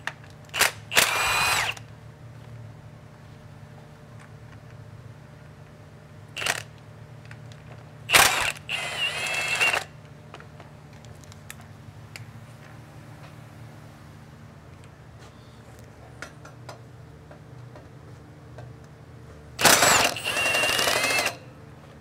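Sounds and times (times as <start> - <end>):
power tool spinning bolts: 0.6 - 1.9, 6.4 - 6.7, 8.1 - 10.0, 19.6 - 21.4.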